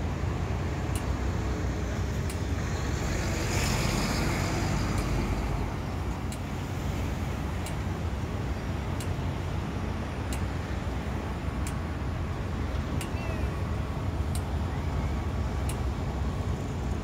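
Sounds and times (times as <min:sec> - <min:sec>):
city traffic rumble: 0:00.0 - 0:17.0
truck passing: 0:00.0 - 0:17.0
crossing signal ticking: 0:00.8 - 0:01.2, 0:06.2 - 0:06.6, 0:07.6 - 0:07.9, 0:10.2 - 0:10.6, 0:11.6 - 0:12.0, 0:14.1 - 0:14.6, 0:15.6 - 0:16.0.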